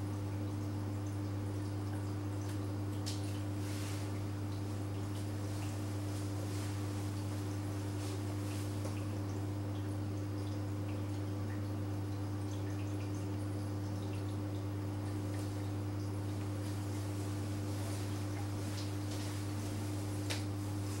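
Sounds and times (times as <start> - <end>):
water dripping and trickling: 0.0 - 19.4
aquarium low hum: 0.0 - 21.0.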